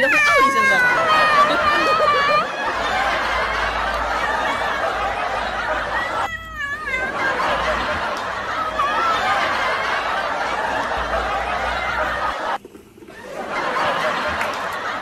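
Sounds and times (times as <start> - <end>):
high-pitched wavering cry: 0.0 - 2.5
snickering laughter: 0.6 - 15.0.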